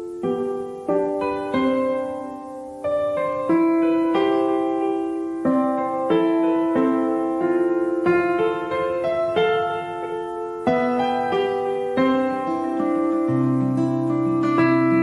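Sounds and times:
slow piano chords: 0.0s - 15.0s.

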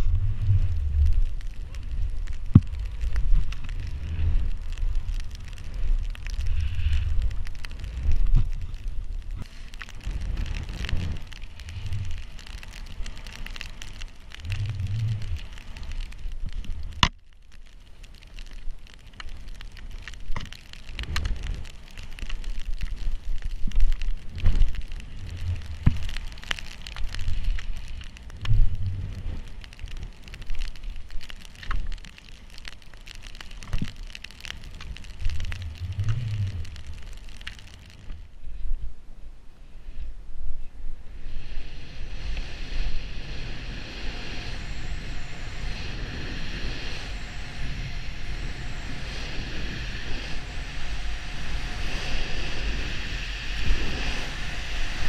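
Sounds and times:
wind buffeting microphone: 0.0s - 17.1s, 40.9s - 55.0s
snowboard hissing through powder: 9.4s - 15.9s, 41.1s - 55.0s.

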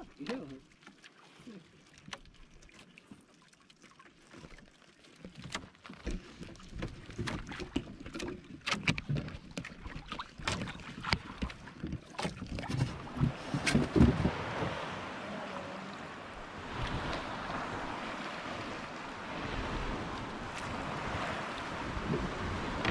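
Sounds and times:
water slapping against hull: 0.0s - 22.9s
boat knocking: 5.5s - 22.9s
wind on microphone: 12.5s - 22.9s.

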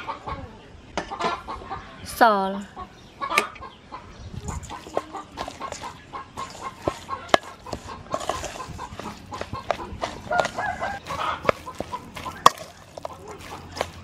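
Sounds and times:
chickens clucking: 0.0s - 14.0s
hand mixing meat in metal bowl: 4.5s - 14.0s.

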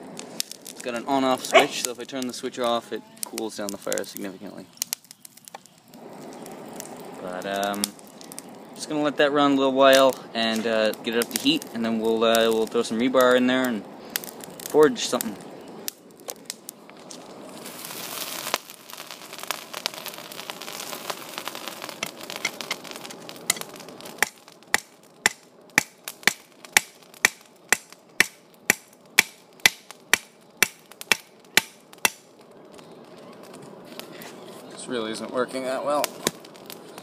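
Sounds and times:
hiss: 17.1s - 24.4s.

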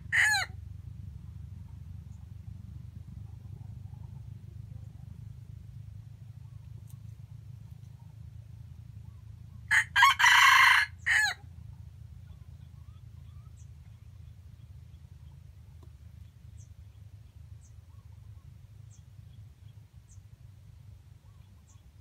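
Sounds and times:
rooster crowing: 0.1s - 0.5s, 9.7s - 11.4s.

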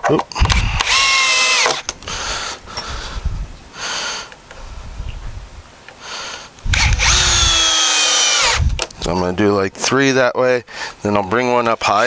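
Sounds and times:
cordless drill driving screw: 0.5s - 3.0s, 6.6s - 8.9s.

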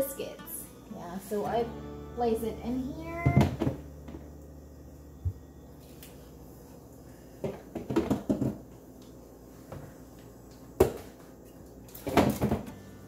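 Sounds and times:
food packages knocking and rustling: 7.4s - 8.7s, 11.9s - 12.8s.

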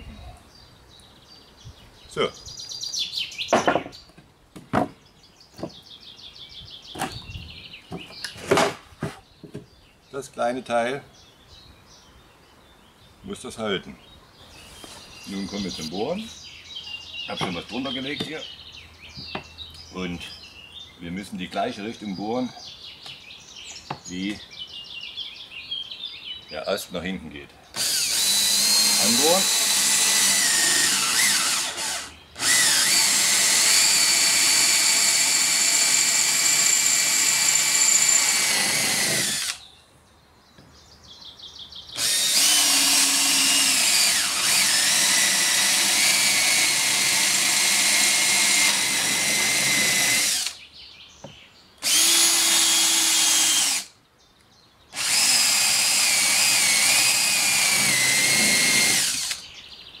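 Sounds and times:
cordless drill whining: 27.8s - 39.6s, 42.0s - 50.6s, 51.8s - 53.9s, 55.0s - 59.4s.

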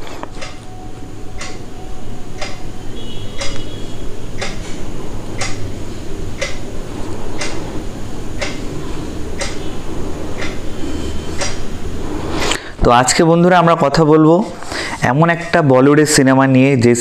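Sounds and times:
steady low hum: 0.0s - 16.2s
clock ticking: 0.2s - 11.8s.

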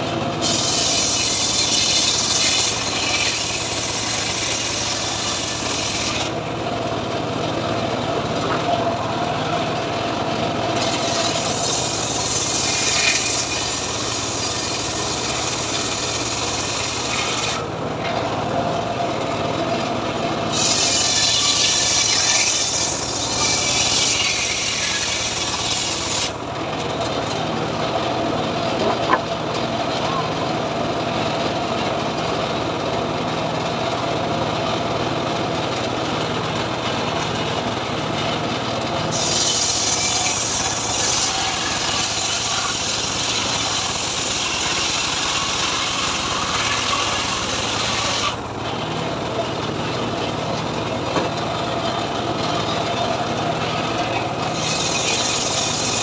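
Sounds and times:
saw blade cutting wood: 0.0s - 6.4s, 10.7s - 18.4s, 20.5s - 27.4s, 28.7s - 29.3s, 39.1s - 48.9s, 51.2s - 56.0s
saw blade spinning hum: 0.0s - 26.4s, 51.6s - 56.0s
engine running: 0.0s - 56.0s.

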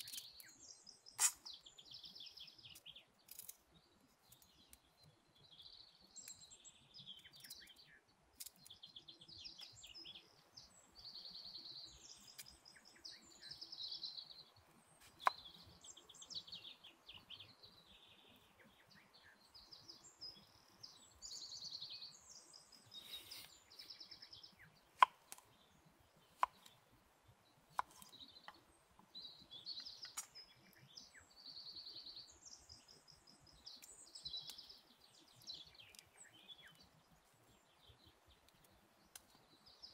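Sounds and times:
songbirds chirping and trilling: 0.0s - 39.9s.

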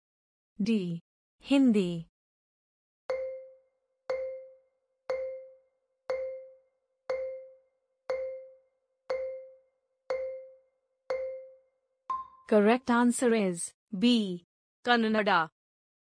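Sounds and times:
countdown timer pings: 3.1s - 12.5s.

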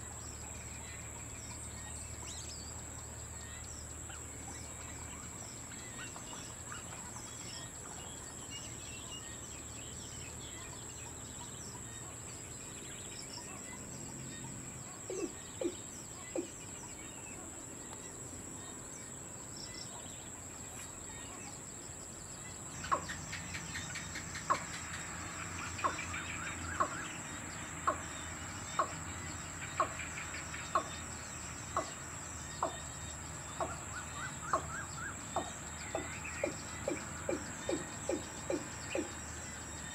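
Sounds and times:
watercock calling: 27.8s - 32.0s, 32.6s - 39.3s.

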